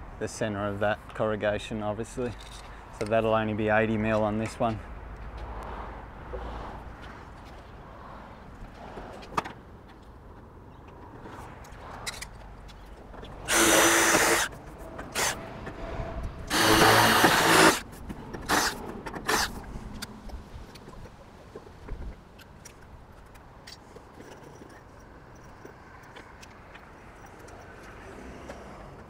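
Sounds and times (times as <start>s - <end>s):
cordless drill driving screws into metal: 13.5s - 15.4s, 16.5s - 17.8s, 18.4s - 19.6s.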